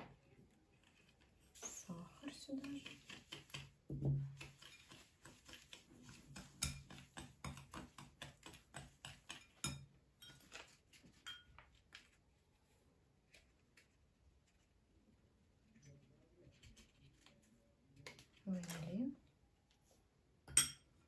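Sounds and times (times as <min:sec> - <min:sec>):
whisk knocking on bowl: 0:02.6 - 0:09.8
whisk clicking against bowl: 0:04.4 - 0:09.9.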